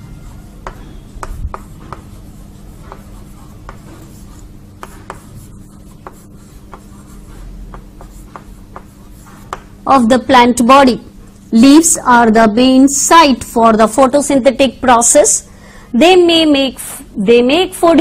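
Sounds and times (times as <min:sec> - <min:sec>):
chalk tapping and scratching: 0:00.0 - 0:09.8
steady low hum: 0:00.0 - 0:18.0.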